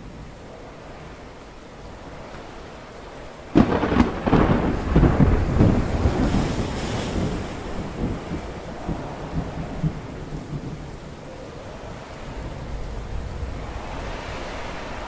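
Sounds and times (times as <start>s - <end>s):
stormy sea noise: 0.0s - 15.0s.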